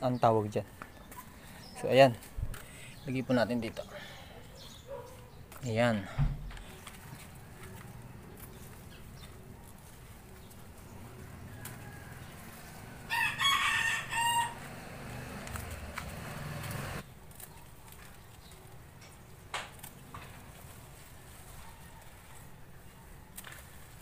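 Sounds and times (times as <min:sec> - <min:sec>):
rooster crowing: 0:11.0 - 0:17.0.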